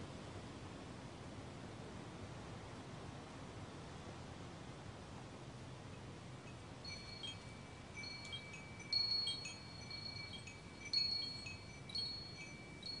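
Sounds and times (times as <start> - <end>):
wind chimes tinkling: 6.4 - 13.0.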